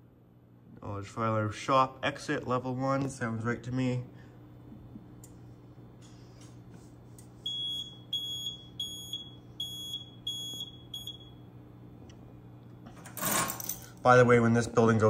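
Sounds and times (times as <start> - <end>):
high-pitched alarm panel beeping: 7.4 - 11.4.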